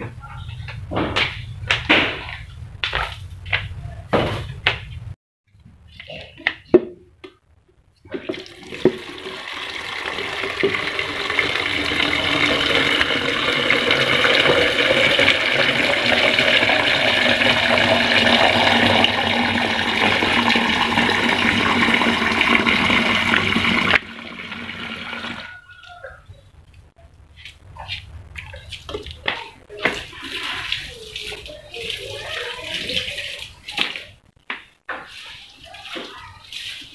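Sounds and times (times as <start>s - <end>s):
water filling plastic jug: 8.2s - 25.5s.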